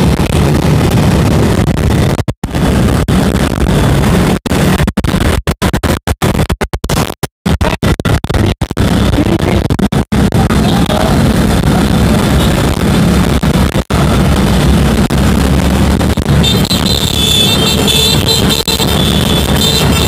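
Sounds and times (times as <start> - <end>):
wind rumble: 0.0 - 20.0
motorcycle engine: 7.5 - 20.0.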